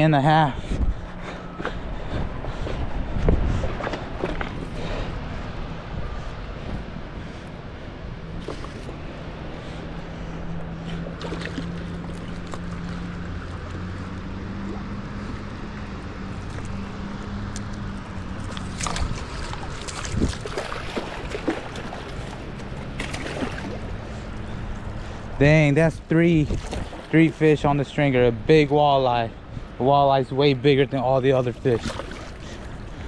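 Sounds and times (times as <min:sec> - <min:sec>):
low motor drone: 0:00.0 - 0:33.0
moving water: 0:00.0 - 0:33.0
clicks and knocks of fish handling: 0:03.6 - 0:04.8, 0:18.4 - 0:23.4.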